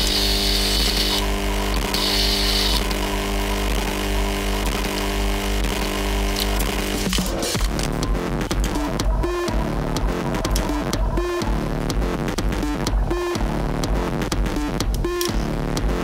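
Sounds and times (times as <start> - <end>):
drill press motor hum: 0.0 - 7.9.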